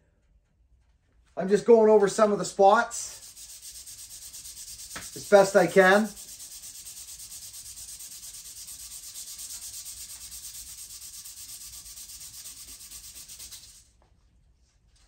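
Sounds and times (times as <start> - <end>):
sanding wooden handle: 1.9 - 13.9.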